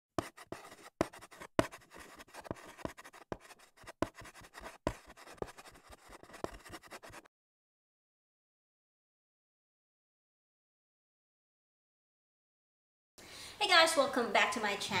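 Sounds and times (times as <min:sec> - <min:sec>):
chalk scratching on blackboard: 0:00.2 - 0:07.3
chalk tapping on board: 0:00.2 - 0:07.3.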